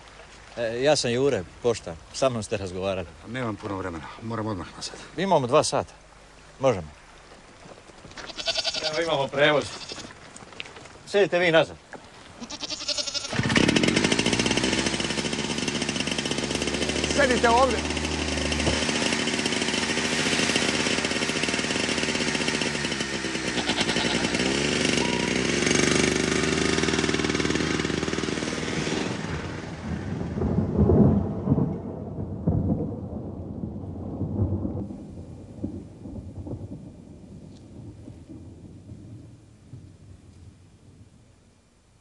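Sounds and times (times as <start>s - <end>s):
rain: 0.0s - 12.6s, 13.4s - 42.0s
thunder rumbling: 28.6s - 41.3s.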